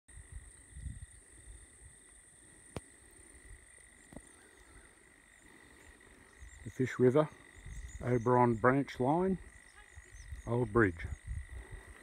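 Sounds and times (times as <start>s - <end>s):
insects chirring: 0.1s - 12.0s.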